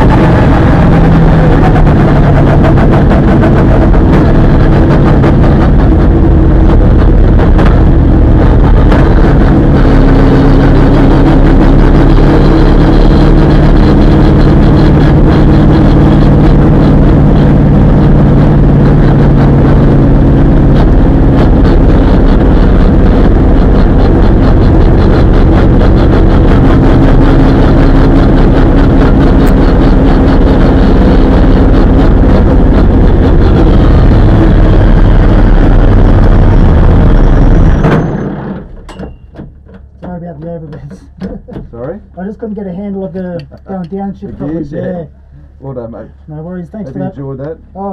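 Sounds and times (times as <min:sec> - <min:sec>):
race car engine: 0:00.0 - 0:47.9.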